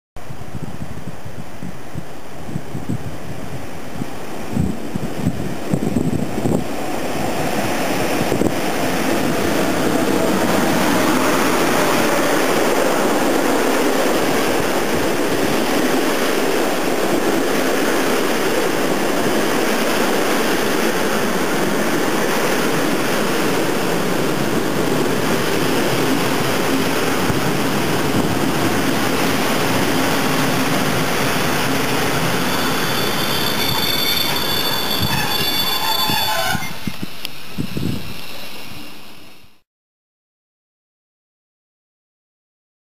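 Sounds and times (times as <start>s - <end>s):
train wheels rumbling on rail: 0.3s - 39.5s
high-pitched wheel squeals: 32.1s - 37.0s.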